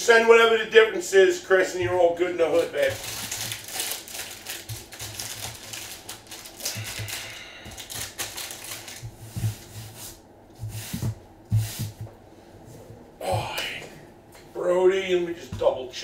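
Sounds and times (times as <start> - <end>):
foil card packs crinkling: 2.4 - 9.7.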